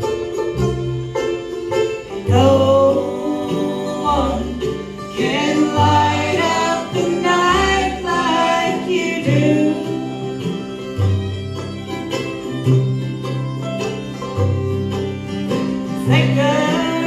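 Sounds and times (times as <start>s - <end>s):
bluegrass band playing: 0.0s - 17.0s
voices singing together: 2.3s - 10.5s.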